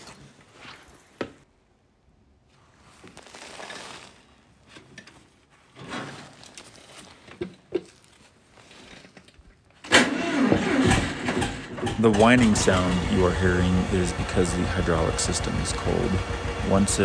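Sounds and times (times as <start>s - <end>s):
rustling and shuffling on a seat: 2.5s - 9.7s.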